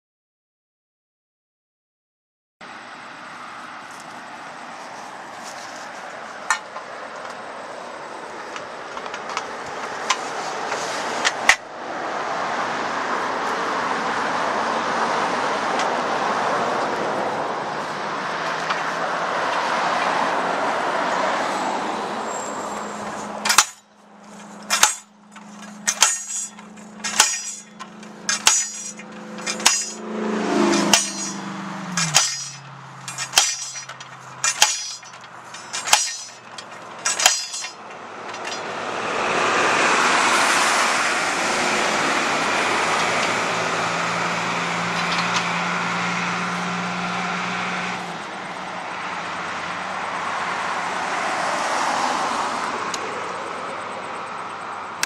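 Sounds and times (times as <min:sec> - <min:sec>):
road traffic passing: 0:02.6 - 0:55.0
post driver hammering metal post: 0:06.5 - 0:06.8, 0:23.4 - 0:38.7.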